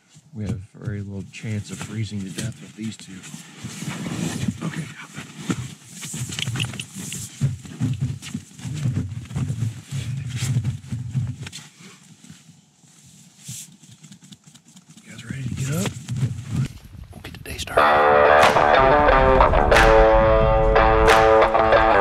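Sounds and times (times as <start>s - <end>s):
rustling: 1.8s - 17.3s.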